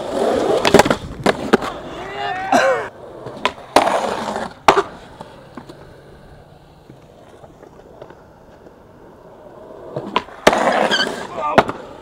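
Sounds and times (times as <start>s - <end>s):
skateboard clacking on concrete: 0.4s - 2.0s, 3.1s - 12.0s.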